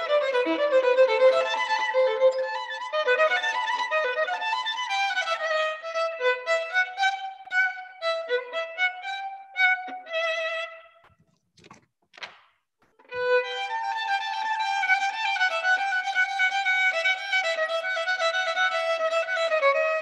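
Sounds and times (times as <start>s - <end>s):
solo violin melody: 0.0s - 11.1s, 13.0s - 20.0s.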